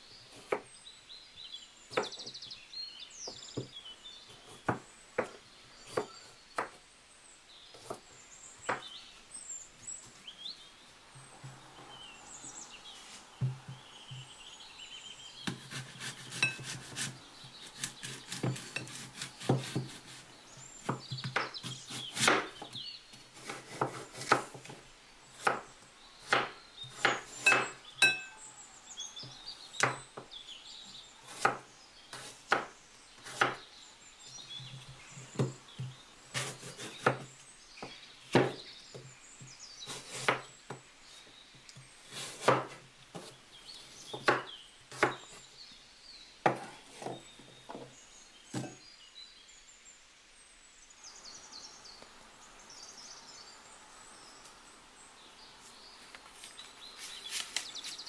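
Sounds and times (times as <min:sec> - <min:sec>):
knife cutting on wooden board: 0:15.4 - 0:22.7, 0:23.4 - 0:24.7, 0:31.3 - 0:33.6, 0:36.3 - 0:37.3, 0:42.1 - 0:43.4.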